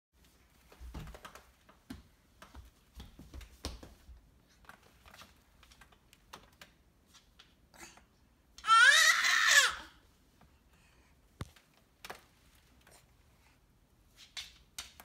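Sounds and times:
light taps on hardwood floor: 0.8 - 4.1.

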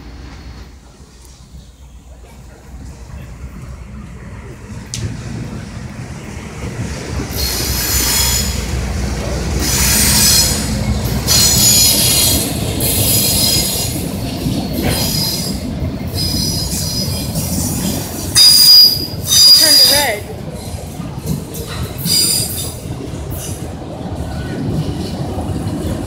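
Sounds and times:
train rumble: 0.0 - 26.0
train wheels squealing: 7.3 - 8.8, 9.6 - 20.7, 21.6 - 23.6.

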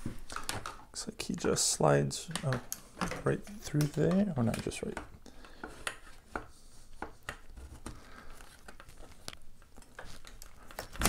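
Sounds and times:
plastic skeleton prop clicks and knocks: 2.2 - 7.5.

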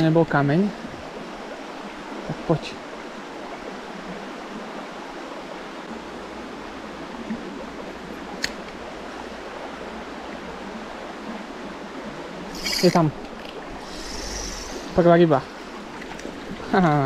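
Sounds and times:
brook water running: 0.0 - 17.0
sharp click: 8.4 - 8.8.

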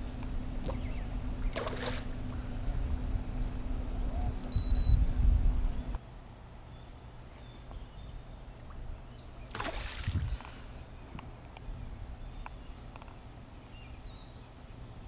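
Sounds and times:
boat motor humming: 0.0 - 6.0
low wind rumble: 0.0 - 15.0.

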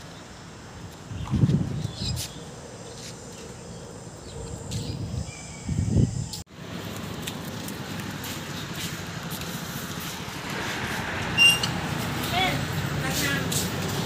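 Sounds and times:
wind buffeting microphone: 0.9 - 2.5, 4.0 - 6.4
road traffic hiss: 6.2 - 14.0.

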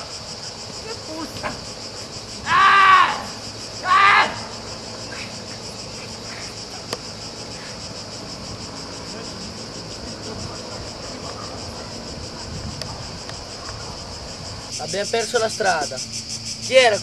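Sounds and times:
high insect drone: 0.0 - 17.0
person yelling: 0.8 - 1.4, 2.4 - 4.6.

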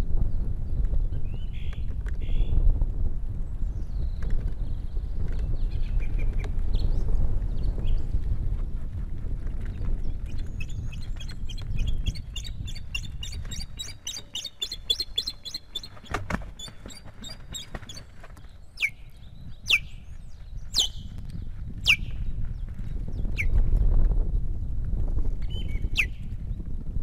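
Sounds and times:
low rumble of wing movement: 0.0 - 27.0
ospreys calling: 10.6 - 18.0.

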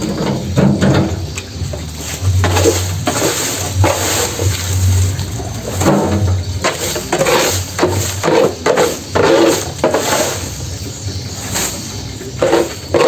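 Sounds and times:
dry stalks rustling: 0.0 - 13.0.

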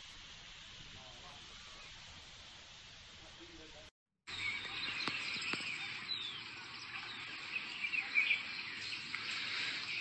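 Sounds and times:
outdoor background hiss: 0.0 - 10.0
birds chirping: 4.3 - 10.0.

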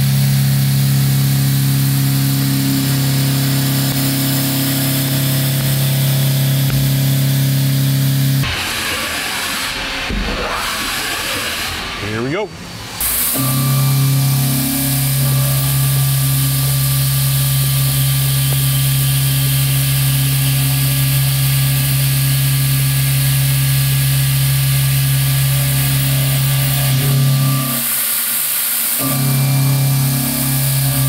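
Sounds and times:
milling cutter low hum: 0.0 - 31.0
coolant spray hiss: 13.0 - 13.4.

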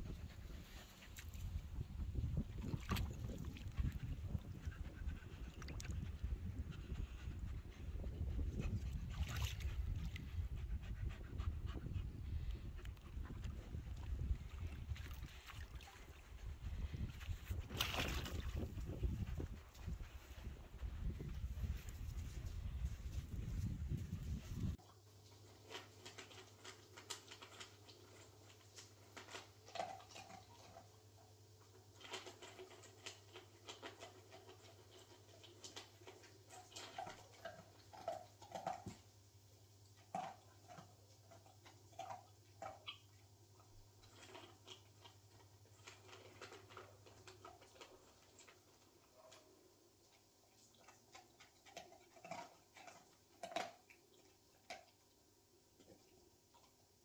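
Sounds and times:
low steady hum: 0.0 - 31.8
dog eating from metal bowl: 24.8 - 57.0.

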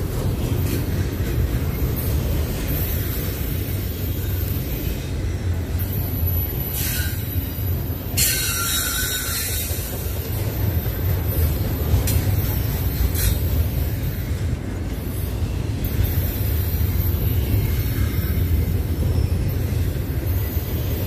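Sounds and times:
train wheels rumbling on rails: 0.0 - 21.0
high-pitched wheel squeal: 6.3 - 9.9.

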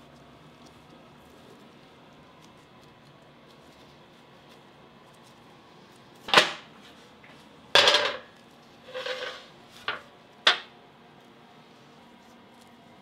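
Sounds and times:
metal tray clattering on marble: 7.8 - 8.3, 8.9 - 10.7.

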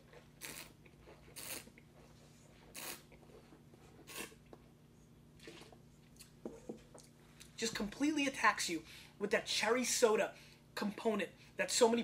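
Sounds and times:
person slurping wine: 0.4 - 1.9, 2.7 - 3.2, 4.0 - 4.4.

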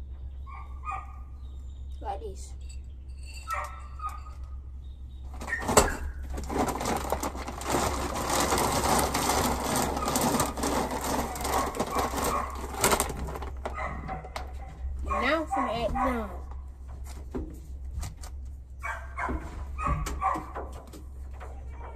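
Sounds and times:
plastic bag rustling: 5.3 - 14.1
dry kibble rattling: 5.3 - 16.1.

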